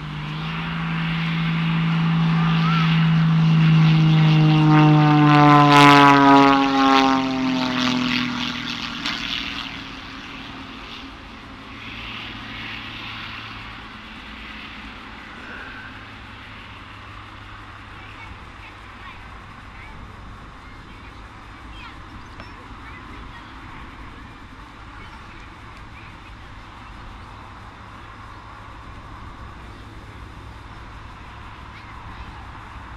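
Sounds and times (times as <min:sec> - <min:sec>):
propeller plane flying past: 0:00.0 - 0:32.9.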